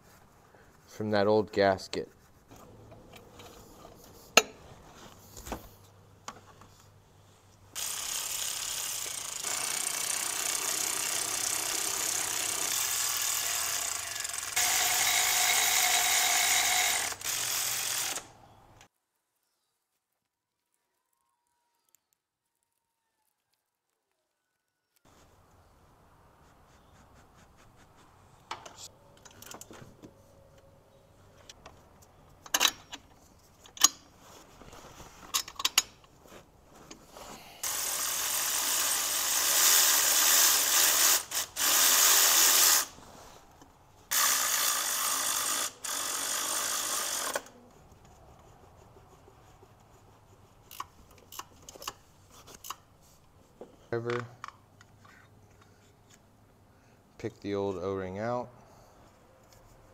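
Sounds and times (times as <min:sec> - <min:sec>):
electric ratchet running on bolt: 0:07.8 - 0:18.3, 0:37.6 - 0:42.9, 0:44.1 - 0:47.5
tools and parts clicking: 0:31.4 - 0:34.1, 0:35.3 - 0:36.2, 0:50.7 - 0:52.8.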